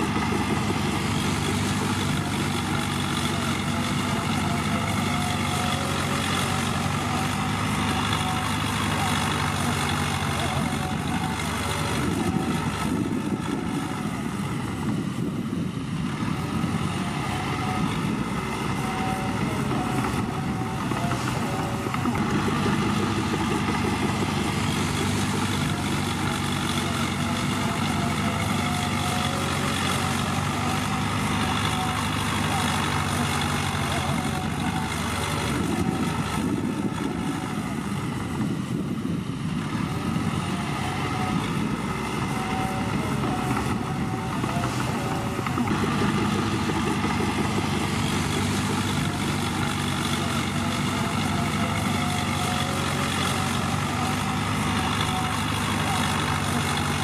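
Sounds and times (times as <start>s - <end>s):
heavy diesel engines running: 0.0s - 57.0s.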